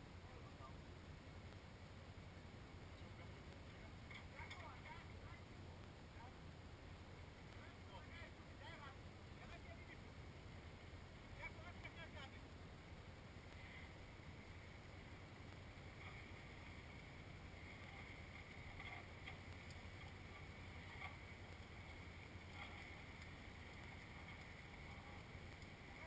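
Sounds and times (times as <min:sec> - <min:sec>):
engines idling low hum: 0:12.4 - 0:26.0.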